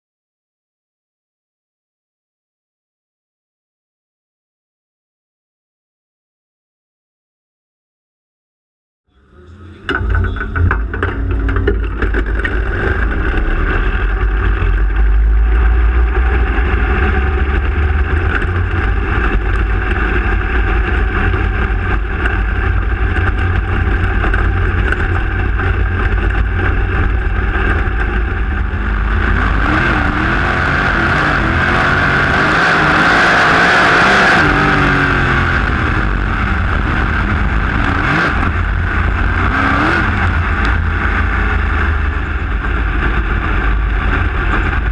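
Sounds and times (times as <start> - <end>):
race car engine rumbling: 9.1 - 44.9.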